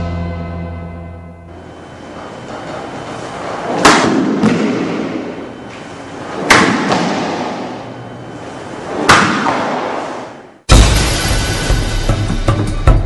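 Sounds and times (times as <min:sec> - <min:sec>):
sword strikes through mat: 0:03.7 - 0:05.2, 0:09.0 - 0:10.3.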